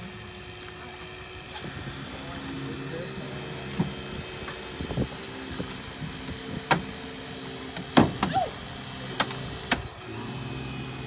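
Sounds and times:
hydraulic pump humming: 0.0 - 11.0
car body cracking and snapping: 7.7 - 8.4.

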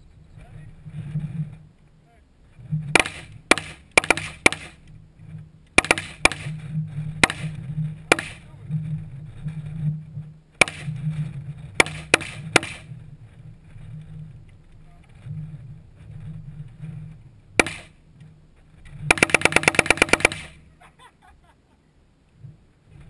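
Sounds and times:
rifle shots: 2.9 - 4.8, 5.8 - 6.6, 7.2 - 8.5, 10.6 - 11.0, 11.8 - 12.8, 17.6 - 17.9, 19.1 - 20.6.

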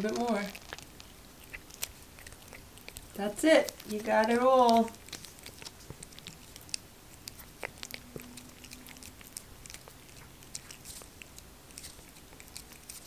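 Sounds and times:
cat licking: 0.0 - 13.0.

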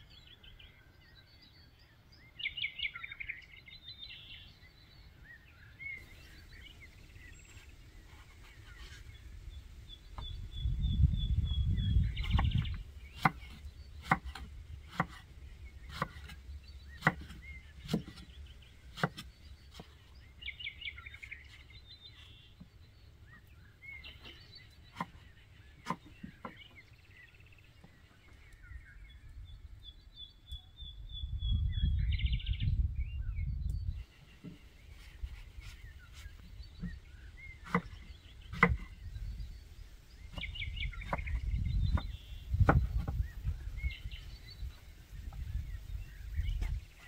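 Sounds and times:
birds chirping: 0.0 - 47.0
knife chopping on wooden board: 13.2 - 15.2, 15.9 - 16.4, 17.0 - 18.3, 19.0 - 19.9, 25.8 - 26.6, 37.6 - 38.9, 40.3 - 43.2.

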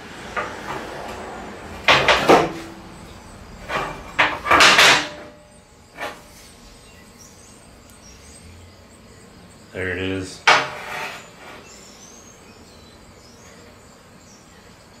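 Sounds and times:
metal pipe scraping on steel table: 3.6 - 6.6, 10.4 - 11.9.

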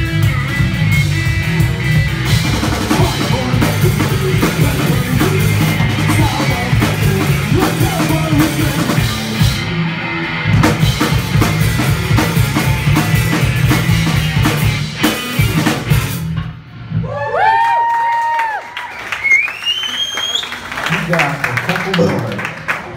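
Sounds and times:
punk rock band playing: 0.0 - 17.1.

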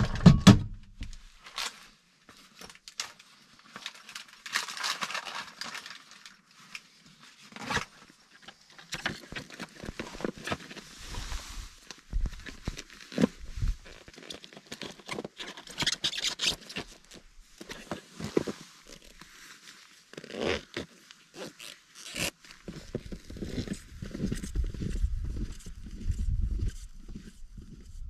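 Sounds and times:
footsteps crunching in snow: 10.8 - 14.0, 22.2 - 28.0.

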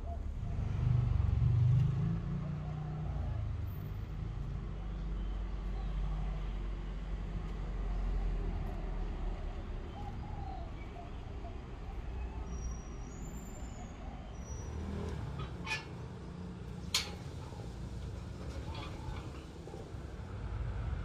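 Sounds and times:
faint bird calls: 9.9 - 16.2
low outdoor rumble: 14.6 - 21.0.

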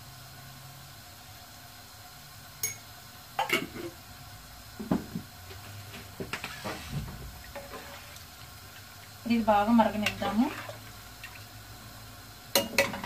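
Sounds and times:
metal spoon clinking on glass and pot: 2.6 - 2.8.

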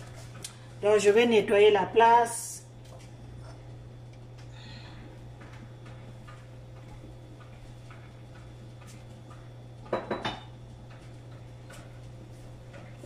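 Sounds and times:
steady low hum: 0.0 - 13.0
dishes and utensils clinking: 9.8 - 10.6.

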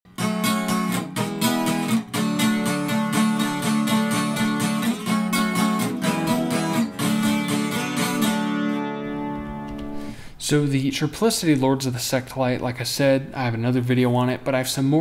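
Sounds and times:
acoustic guitar strumming: 0.1 - 10.3.

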